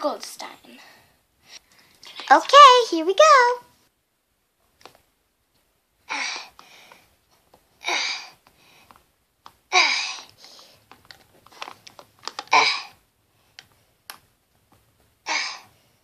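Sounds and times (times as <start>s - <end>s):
dolls clicking: 8.4s - 12.6s.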